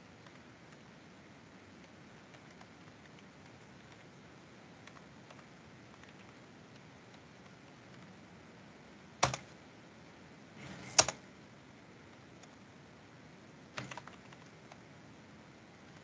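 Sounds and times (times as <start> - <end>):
computer keyboard typing: 1.8 - 4.2, 4.8 - 8.1, 9.2 - 9.5, 10.8 - 11.2, 13.8 - 14.8.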